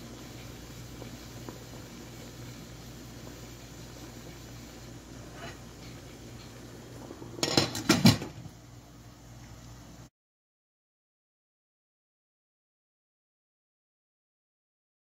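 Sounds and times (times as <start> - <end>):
pot lid clattering on metal pot: 7.4 - 8.5.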